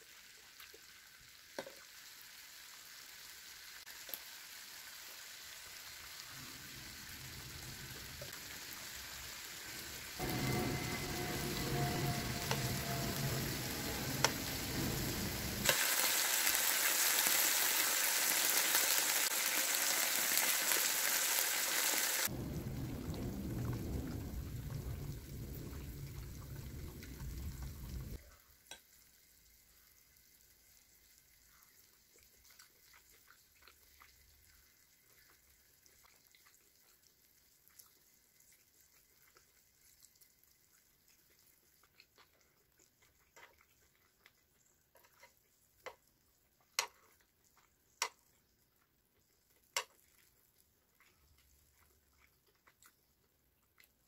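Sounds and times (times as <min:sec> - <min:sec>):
food sizzling on a grill: 0:00.0 - 0:40.4.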